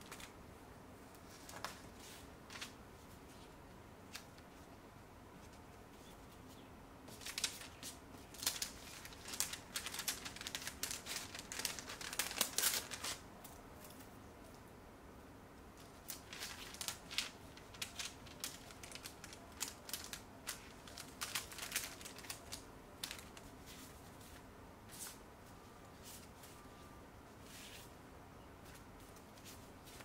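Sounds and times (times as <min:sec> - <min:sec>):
paper and plastic sleeve rustling: 0:00.0 - 0:00.3, 0:01.2 - 0:03.5, 0:07.1 - 0:14.1, 0:15.8 - 0:25.2.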